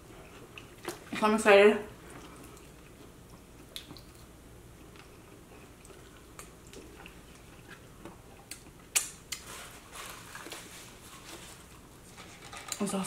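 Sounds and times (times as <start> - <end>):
people chewing: 0.0 - 1.2, 2.0 - 12.6
mouth clicks and smacks: 8.4 - 9.4.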